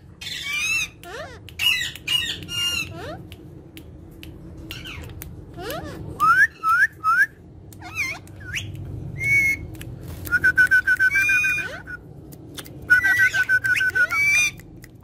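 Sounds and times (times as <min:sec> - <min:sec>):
parakeet chirps: 0:00.1 - 0:03.3, 0:07.8 - 0:09.7, 0:13.0 - 0:14.7
parakeets whistling: 0:10.3 - 0:12.0, 0:12.9 - 0:14.6.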